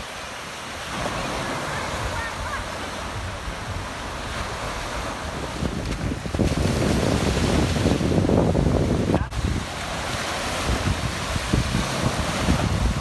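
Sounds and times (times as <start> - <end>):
small waves breaking on beach: 0.0 - 13.0
wind rumbling on microphone: 0.0 - 13.0.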